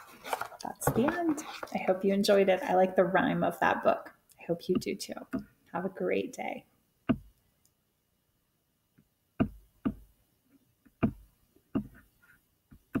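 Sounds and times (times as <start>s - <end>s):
sharp knocks with dull thud: 7.1s - 7.3s, 9.4s - 10.0s, 11.0s - 11.2s.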